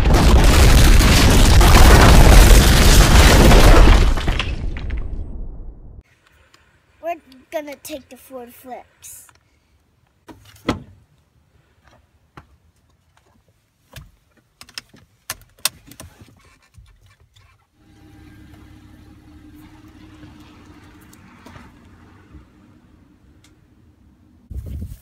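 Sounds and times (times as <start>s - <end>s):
car engine humming: 17.8s - 24.5s.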